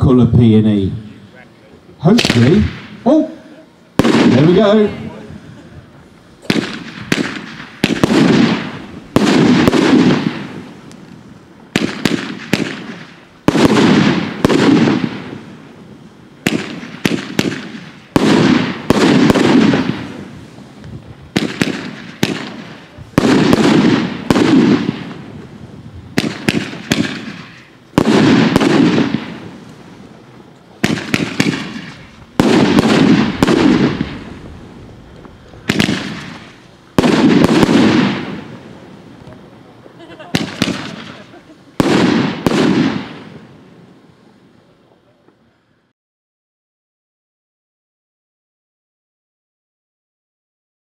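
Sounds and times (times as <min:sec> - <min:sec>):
roman candle firework bangs: 0:02.1 - 0:03.3, 0:04.0 - 0:05.2, 0:06.4 - 0:15.7, 0:16.4 - 0:20.6, 0:21.3 - 0:29.9, 0:30.8 - 0:38.7, 0:40.3 - 0:43.5.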